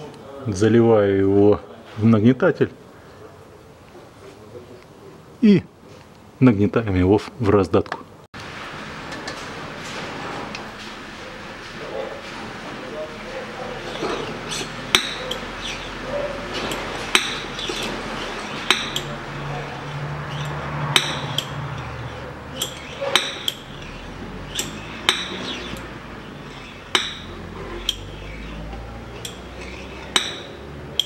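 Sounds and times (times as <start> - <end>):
hand oil pump metallic clack: 14.0 - 15.8, 16.6 - 19.2, 19.9 - 31.0.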